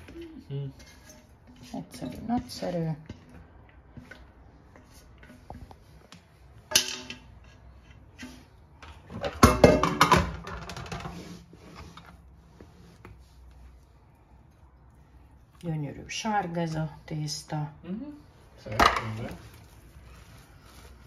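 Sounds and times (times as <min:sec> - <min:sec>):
soft stirring: 0:00.0 - 0:09.1, 0:10.8 - 0:21.0
clattering and scraping: 0:00.0 - 0:13.1.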